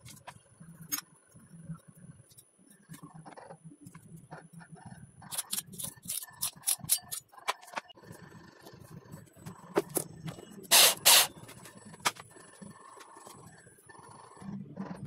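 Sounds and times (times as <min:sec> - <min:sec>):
electric drill with hole saw: 0:10.7 - 0:11.3.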